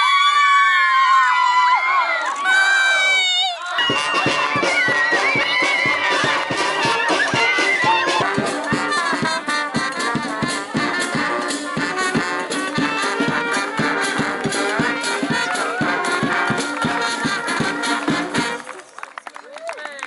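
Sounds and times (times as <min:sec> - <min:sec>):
rattling percussion: 0:02.3 - 0:18.8
brass band music: 0:02.4 - 0:18.8
steady drum beat: 0:03.8 - 0:18.6.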